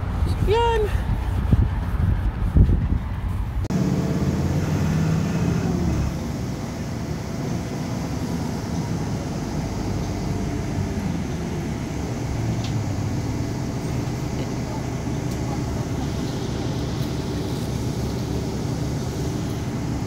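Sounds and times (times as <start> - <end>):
wind on microphone: 0.0 - 3.7
bus engine drone: 0.0 - 20.0
road rumble: 0.0 - 20.0.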